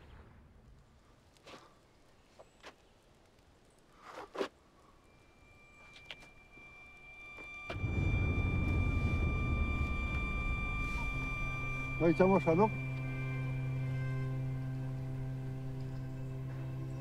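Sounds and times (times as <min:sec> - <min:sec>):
steady high tone: 0:05.1 - 0:17.0
car cabin engine and road rumble: 0:07.7 - 0:16.5.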